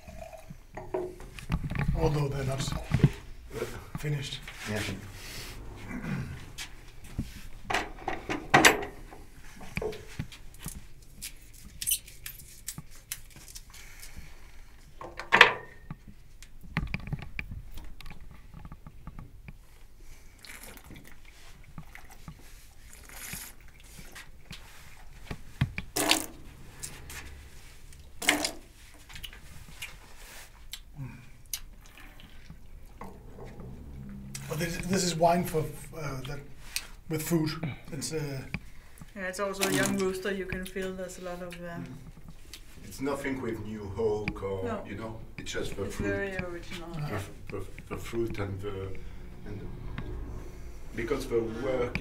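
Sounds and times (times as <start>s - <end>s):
wine pouring: 0.0s - 1.3s, 26.0s - 26.4s
person sipping: 20.4s - 22.2s, 22.8s - 24.3s, 29.2s - 33.0s.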